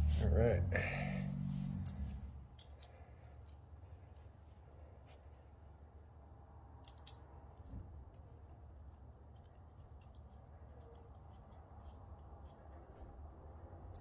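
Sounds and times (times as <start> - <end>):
low steady hum: 0.0 - 14.0
small metallic clicks and scrapes: 1.7 - 5.4, 6.8 - 13.2.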